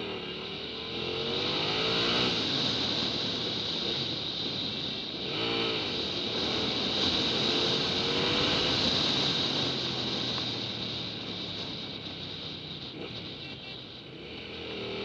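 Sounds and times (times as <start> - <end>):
motorcycle engine cruising: 0.0 - 15.0
wind and road noise: 0.0 - 15.0.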